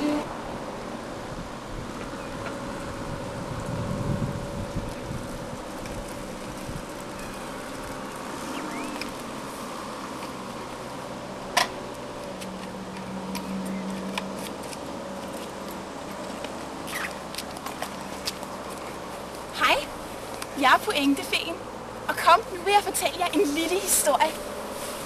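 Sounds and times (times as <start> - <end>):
outdoor hiss: 15.5 - 25.0.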